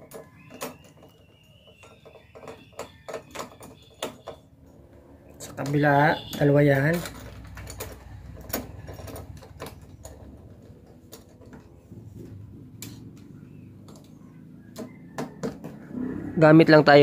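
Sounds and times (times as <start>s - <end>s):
metal lock parts clicking: 0.0s - 11.8s.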